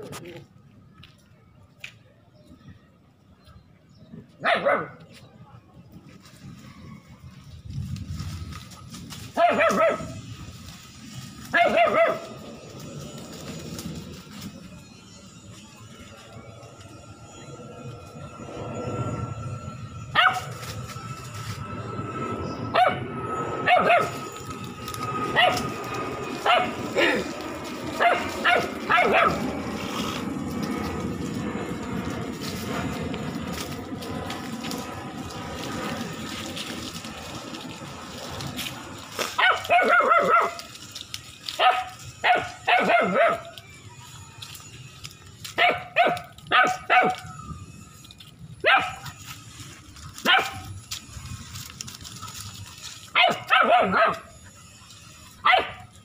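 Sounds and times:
puppy barking in high yips: 4.4s - 5.0s, 9.4s - 10.2s, 11.5s - 12.3s, 20.2s - 20.5s, 22.7s - 23.0s, 23.6s - 24.2s, 25.3s - 25.7s, 26.4s - 27.1s, 28.0s - 29.5s, 39.3s - 40.7s, 41.6s - 43.6s, 45.6s - 47.4s, 48.6s - 49.1s, 50.2s - 50.7s, 53.1s - 54.3s, 55.4s - 55.9s
puppy yipping: 45.6s - 47.4s, 48.6s - 49.1s, 53.2s - 54.3s.

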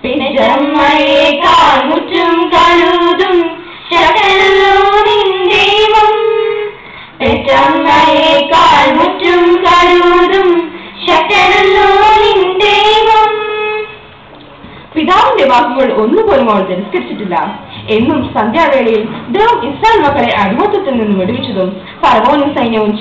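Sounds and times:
girl singing into a microphone: 0.0s - 13.9s.

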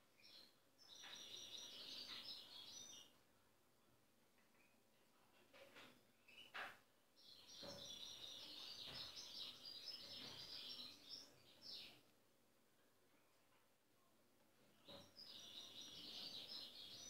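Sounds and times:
goldfinch twittering song: 14.9s - 17.0s.

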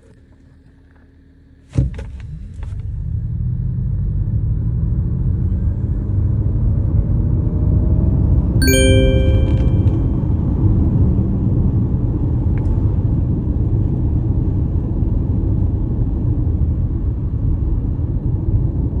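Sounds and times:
road and wind rumble in car: 1.8s - 8.6s, 11.6s - 19.0s.

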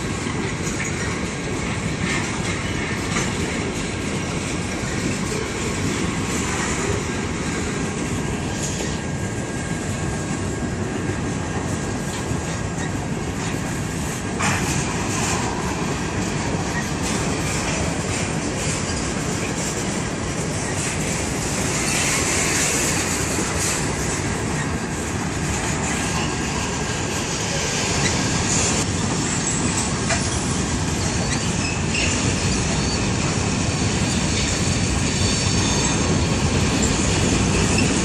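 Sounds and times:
train wheels rumbling on rails: 0.0s - 38.0s.

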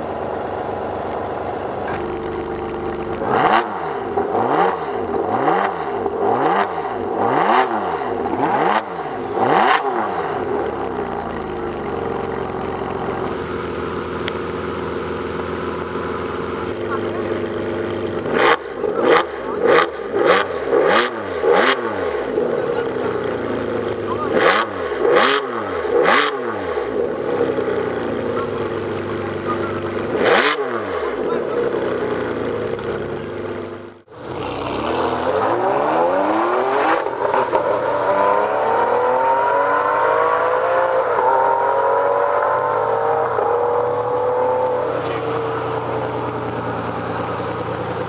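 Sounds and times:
car engine accelerating hard: 0.0s - 48.0s
car engine revving in blips: 0.0s - 48.0s.

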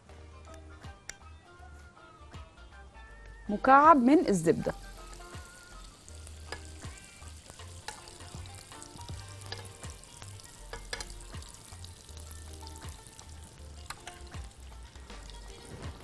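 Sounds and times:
butter sizzling in oil: 3.6s - 16.0s
spoon scraping and tapping a pan: 6.3s - 11.6s.

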